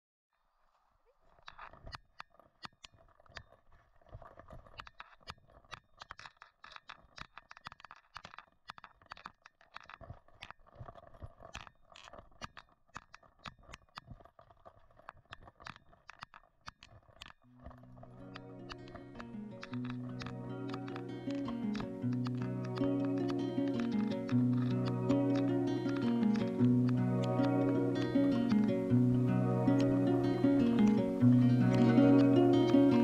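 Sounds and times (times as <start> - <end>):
music: 17.6 - 33.0.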